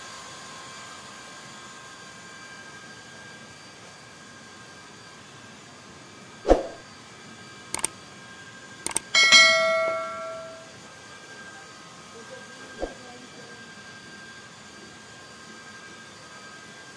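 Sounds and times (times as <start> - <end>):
bell ding: 9.2 - 10.7.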